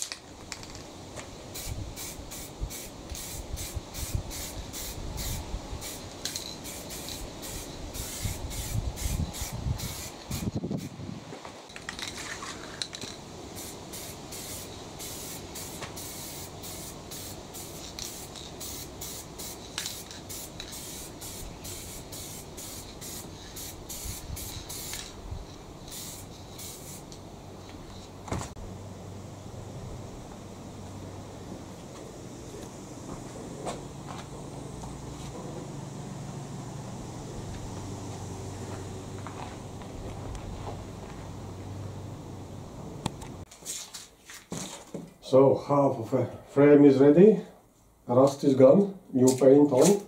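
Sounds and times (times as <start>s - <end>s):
spray paint hissing in bursts: 1.4s - 11.1s, 12.3s - 28.1s.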